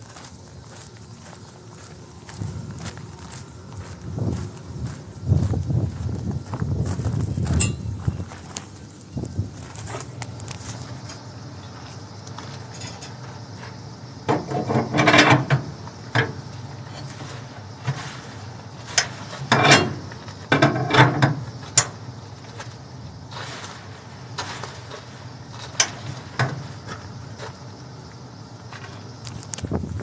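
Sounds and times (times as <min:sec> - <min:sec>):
ratchet winch clicking and clanking: 0:14.5 - 0:15.6, 0:19.0 - 0:21.9.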